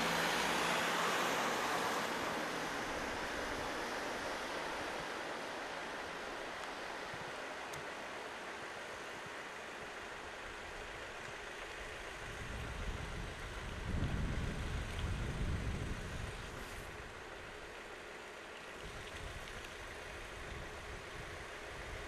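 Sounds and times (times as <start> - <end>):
outdoor background hiss: 0.0 - 22.0.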